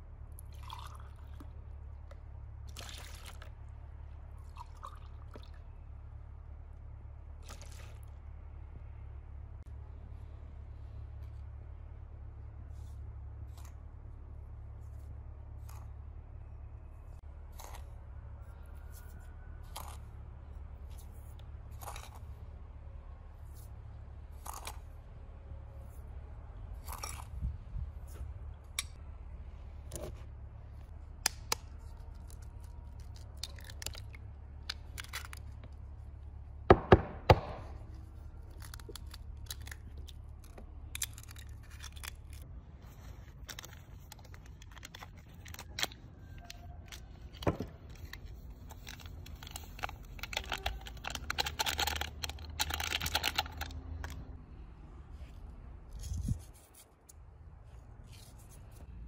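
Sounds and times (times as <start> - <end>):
packet crinkling and tearing: 31.9 - 35.5, 38.1 - 42.4, 43.2 - 46.1, 46.9 - 54.2.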